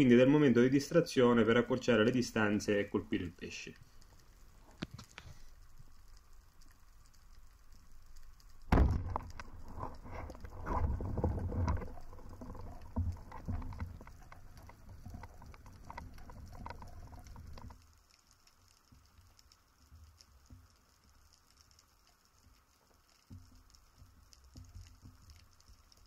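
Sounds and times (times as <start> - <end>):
rumbling water noise: 0.0 - 26.0
speargun firing underwater: 8.7 - 9.6.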